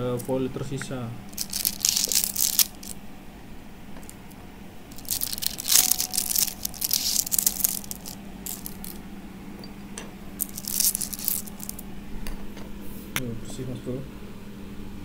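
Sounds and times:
low steady hum: 0:00.0 - 0:15.0
foil crinkling and tearing: 0:01.3 - 0:03.0, 0:05.0 - 0:09.0, 0:10.4 - 0:11.8.

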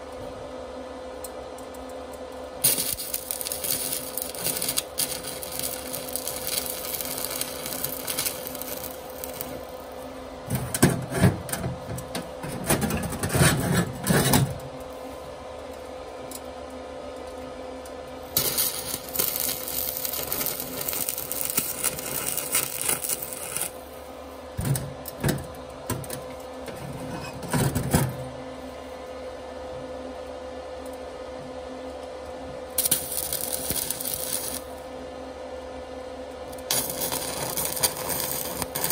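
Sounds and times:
faint steady hum: 0:00.0 - 0:38.9
welding arc crackling and hissing: 0:02.6 - 0:15.2, 0:18.2 - 0:25.4, 0:32.7 - 0:34.8, 0:36.5 - 0:38.9.

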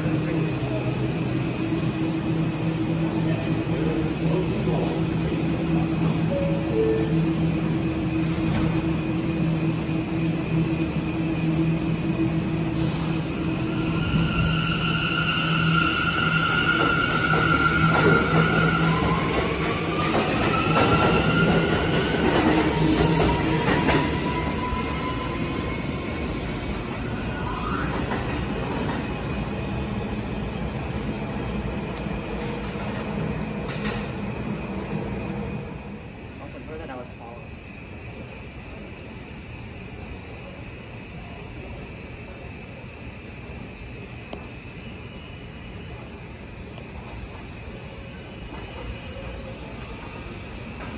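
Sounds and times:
subway train equipment humming: 0:00.0 - 0:50.9.

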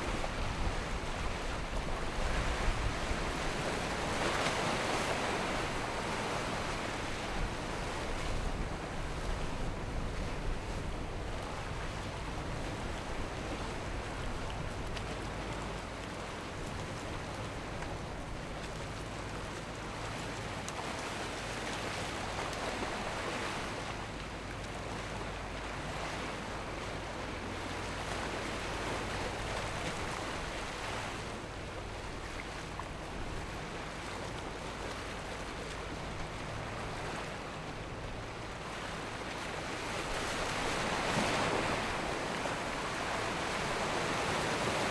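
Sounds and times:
surf and wake washing: 0:00.0 - 0:44.9.

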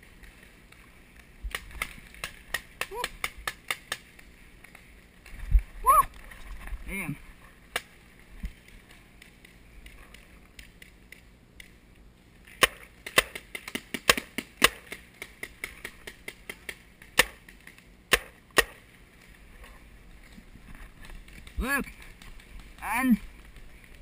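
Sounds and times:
paintball markers firing: 0:01.4 - 0:04.2, 0:12.5 - 0:18.9.

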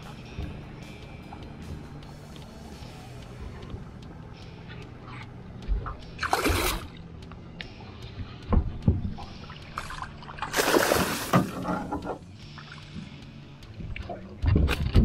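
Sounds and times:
fish splashing: 0:09.8 - 0:11.6.

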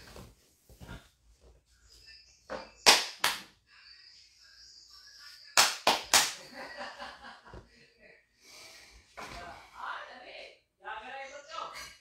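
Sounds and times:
sharp hand slaps: 0:02.8 - 0:03.5, 0:05.6 - 0:06.4.

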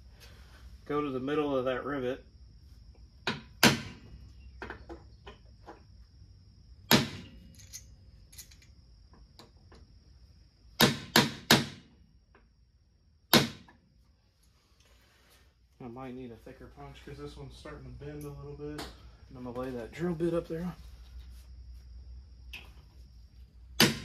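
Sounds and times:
hammer striking steel punch: 0:23.8 - 0:24.0.

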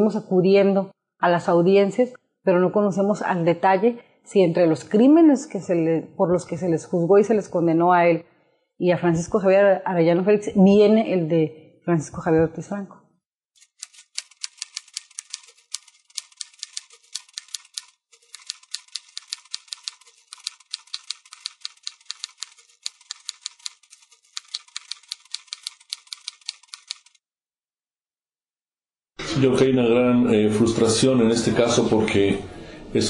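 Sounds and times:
rapid keyboard typing: 0:13.6 - 0:27.2.

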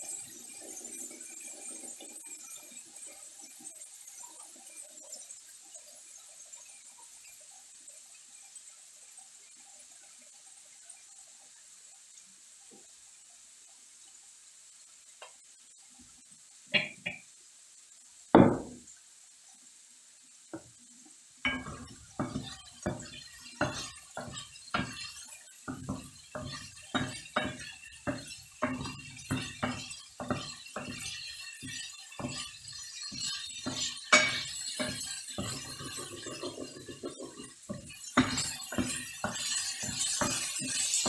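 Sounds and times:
utensil clinking on dish: 0:21.5 - 0:41.0.

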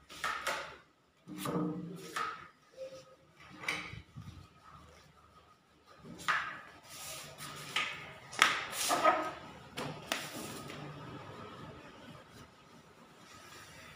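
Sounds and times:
plastering tools knocking and scraping: 0:05.9 - 0:10.9.

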